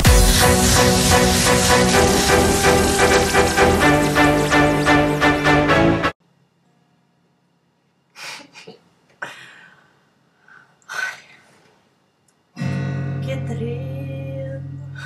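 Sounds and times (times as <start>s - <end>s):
acoustic guitar chord ringing: 12.6s - 14.6s.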